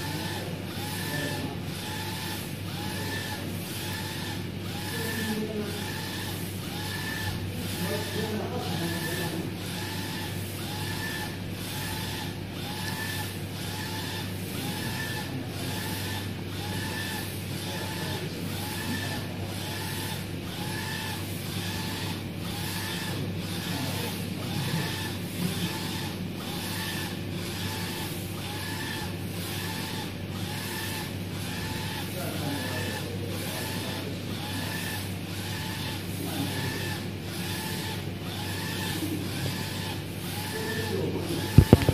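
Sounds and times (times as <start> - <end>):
printer carriage motor whining: 0.0 - 41.9
steady low hum: 41.5 - 41.9.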